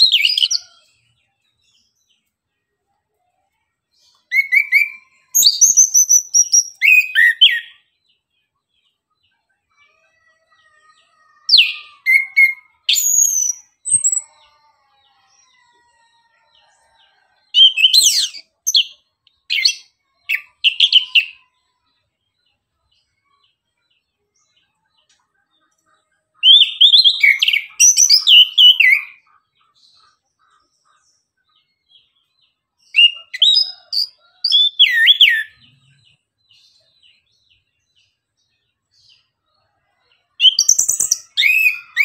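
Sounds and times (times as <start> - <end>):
thrush singing whistled phrases: 4.3 - 7.8.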